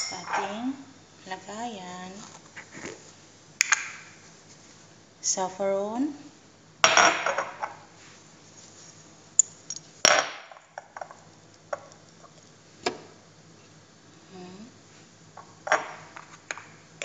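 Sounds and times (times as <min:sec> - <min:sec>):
glass jar clinks and knocks: 0:00.0 - 0:00.6
utensils rattling: 0:00.0 - 0:00.6.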